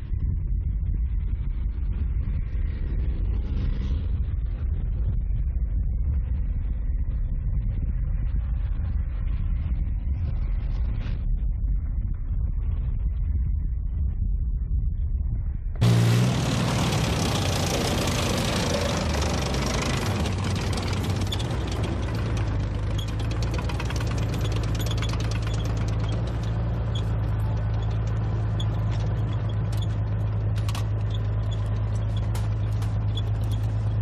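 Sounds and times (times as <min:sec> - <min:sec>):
heavy vehicle engine idling: 0:15.8 - 0:34.0.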